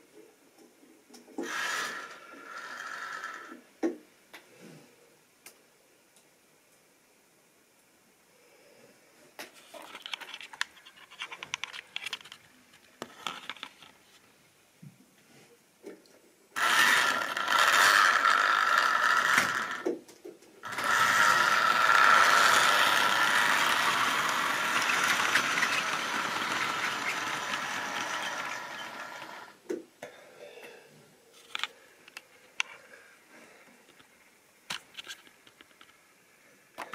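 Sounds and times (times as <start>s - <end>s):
model train motor hum: 1.4s - 3.6s, 16.6s - 19.9s, 20.6s - 29.6s.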